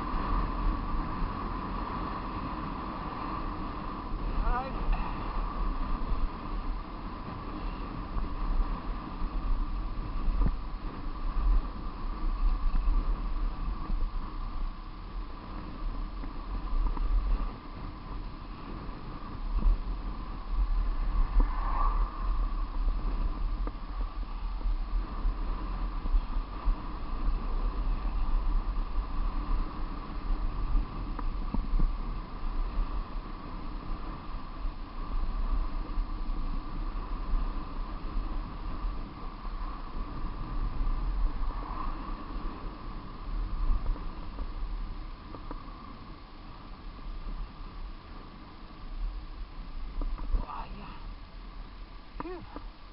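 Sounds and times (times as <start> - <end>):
road noise hum: 0.0 - 52.9
wind buffeting microphone: 0.0 - 52.9
car passing: 20.2 - 24.1.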